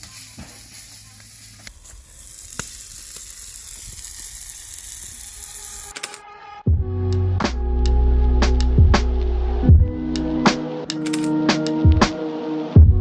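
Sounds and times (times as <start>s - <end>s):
sharp pops: 0.0s - 6.2s.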